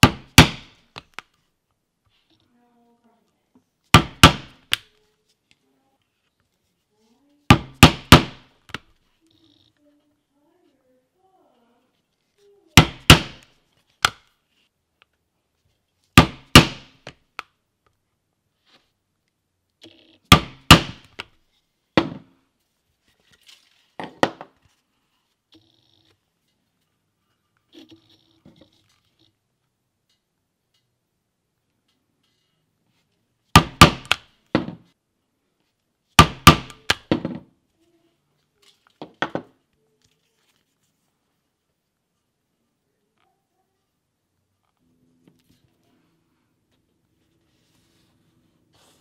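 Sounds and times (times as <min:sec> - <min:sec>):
mallet striking stitching iron: 0:00.0 - 0:00.8, 0:03.9 - 0:04.7, 0:07.5 - 0:08.8, 0:16.2 - 0:16.9, 0:20.3 - 0:21.2, 0:33.6 - 0:34.7, 0:36.2 - 0:37.2.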